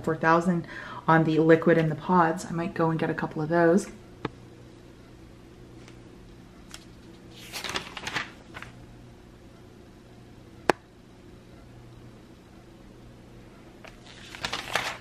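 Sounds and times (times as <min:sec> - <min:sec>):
faint low hum: 0:00.0 - 0:15.0
paper pages rustling: 0:06.7 - 0:08.8, 0:13.8 - 0:15.0.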